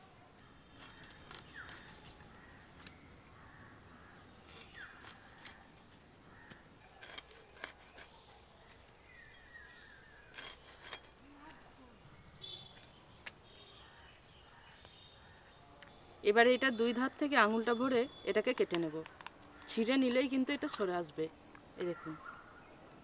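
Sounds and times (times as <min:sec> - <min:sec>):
faint birds chirping: 0:00.0 - 0:23.0.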